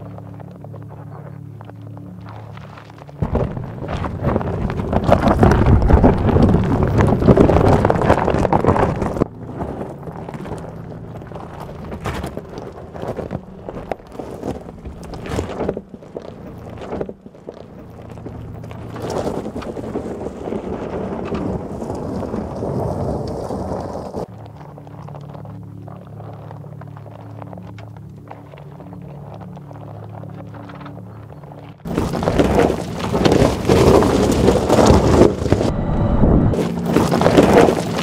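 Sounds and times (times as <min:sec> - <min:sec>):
stones clicking and knocking: 0:00.0 - 0:35.7, 0:36.6 - 0:38.0
gravel crunching under tyres: 0:00.0 - 0:38.0
wind buffeting microphone: 0:03.2 - 0:14.0, 0:32.2 - 0:38.0.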